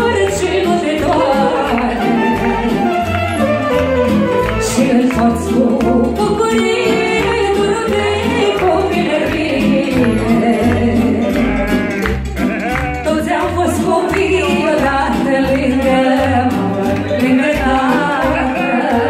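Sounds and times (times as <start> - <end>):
woman singing into a microphone: 0.0 - 3.2, 4.6 - 11.5, 13.1 - 19.0
violin: 0.0 - 14.9
saxophone: 1.1 - 5.2, 10.0 - 13.2.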